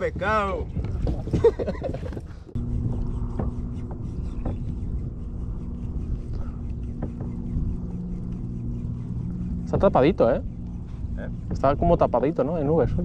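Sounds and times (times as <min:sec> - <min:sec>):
low mechanical hum: 0:00.0 - 0:13.0
low rumble: 0:00.0 - 0:13.0.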